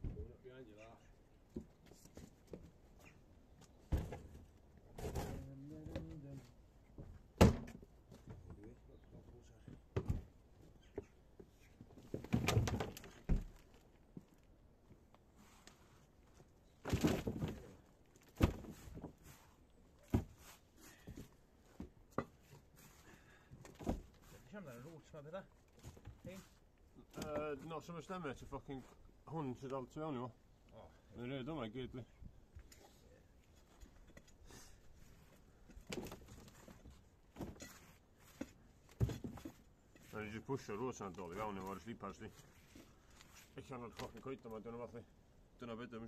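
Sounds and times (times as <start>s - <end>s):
soil and wood thudding in wheelbarrow: 16.8s - 19.2s, 20.0s - 20.5s
scraping rustle of soil: 18.8s - 19.7s, 20.3s - 21.0s, 39.4s - 44.3s.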